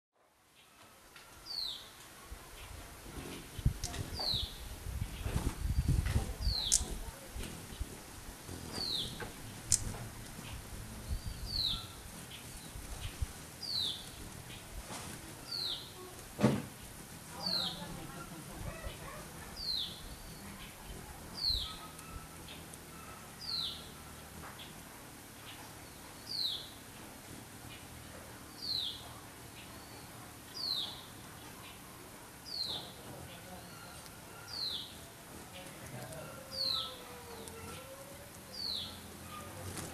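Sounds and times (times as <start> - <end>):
sharp clicks: 6.6 - 7.0, 9.6 - 10.0.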